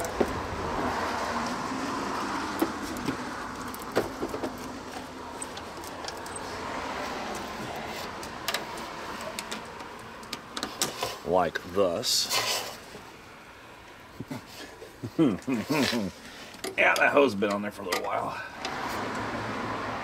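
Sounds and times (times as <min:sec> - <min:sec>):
sharp clicks and knocks: 0:02.5 - 0:06.4, 0:08.1 - 0:11.7.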